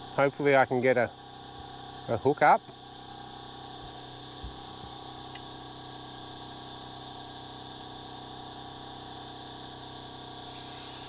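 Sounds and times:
motor hum: 0:00.0 - 0:11.0
high steady hiss: 0:10.5 - 0:11.0.

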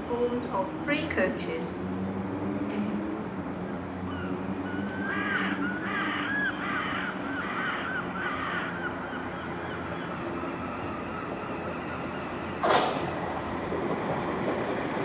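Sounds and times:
large bird calling: 0:03.7 - 0:13.3.

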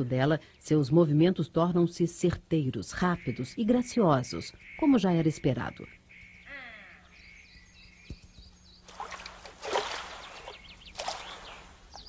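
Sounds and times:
faint bird chirps: 0:02.9 - 0:08.9
deer splashing through water: 0:08.9 - 0:12.0.

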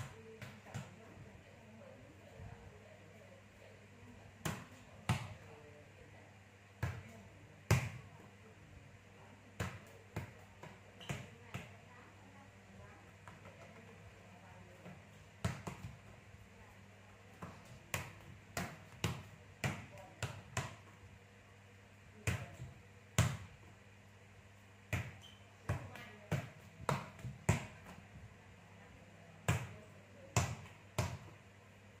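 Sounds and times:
ball bouncing on tiled floor: 0:00.0 - 0:01.2, 0:04.4 - 0:05.5, 0:06.8 - 0:08.2, 0:09.5 - 0:11.9, 0:13.0 - 0:14.0, 0:14.8 - 0:16.3, 0:17.3 - 0:21.0, 0:22.2 - 0:23.7, 0:24.9 - 0:28.2, 0:29.4 - 0:31.4.

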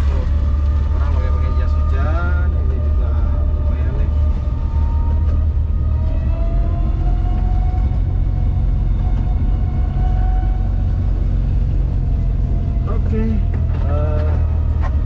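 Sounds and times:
low rumble of vehicle ride: 0:00.0 - 0:15.0.

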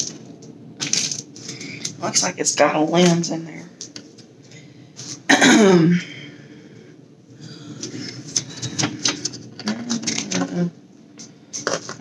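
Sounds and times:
paper rustling: 0:00.0 - 0:02.0.

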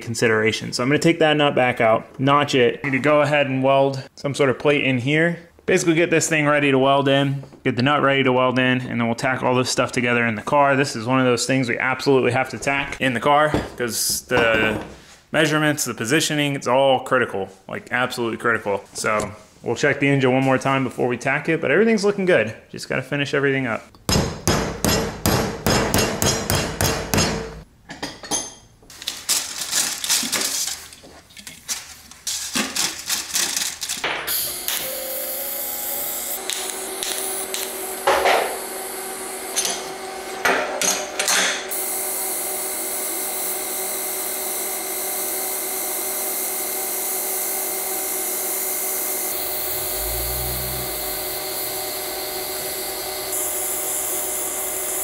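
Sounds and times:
hammer striking steel tubing: 0:24.1 - 0:27.6
welding hiss and hum: 0:34.3 - 0:39.6, 0:41.7 - 0:55.0.

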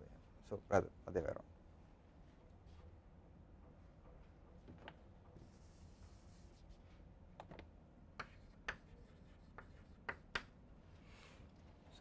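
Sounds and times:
chalk tapping and scratching: 0:08.2 - 0:10.5.

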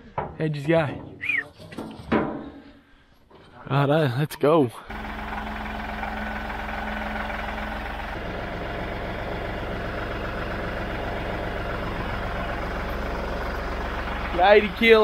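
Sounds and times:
tractor engine idling: 0:04.9 - 0:15.0.

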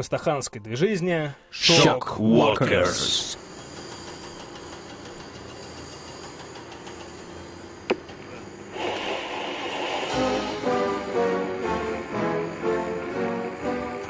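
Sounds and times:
noisy swell: 0:08.7 - 0:14.0
heavy metal music: 0:09.9 - 0:14.0.

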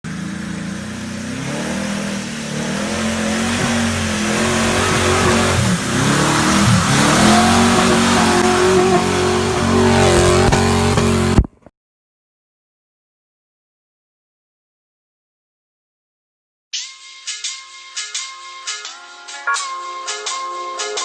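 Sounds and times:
off-road vehicle engine revving: 0:00.0 - 0:11.4.

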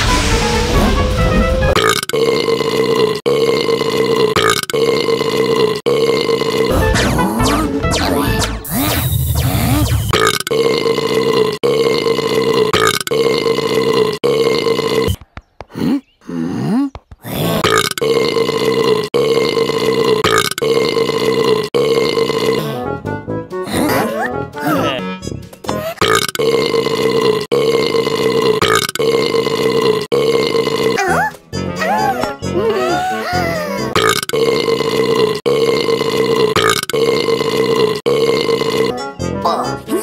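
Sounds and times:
cartoon background music: 0:00.0 - 0:02.0, 0:06.7 - 0:10.2, 0:22.3 - 0:26.2, 0:30.8 - 0:34.2, 0:38.1 - 0:40.0
long burp: 0:01.7 - 0:06.9, 0:10.1 - 0:22.8, 0:25.9 - 0:31.2, 0:32.9 - 0:39.1.

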